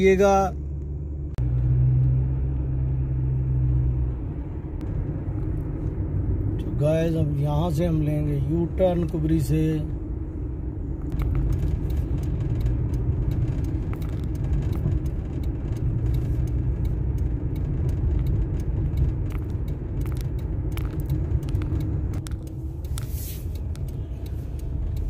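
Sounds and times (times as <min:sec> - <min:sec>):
car engine and road rumble: 0:00.0 - 0:25.0
constant hum: 0:00.0 - 0:25.0
faint clicks and rattles: 0:11.0 - 0:25.0.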